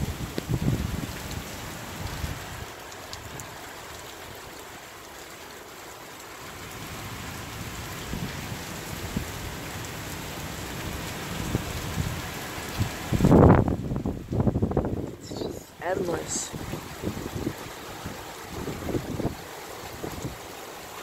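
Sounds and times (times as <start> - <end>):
wind gust buffeting microphone: 0.0 - 2.7, 11.4 - 20.4
strong wind: 0.0 - 3.5, 11.2 - 20.6
heavy rain pouring: 0.0 - 21.0.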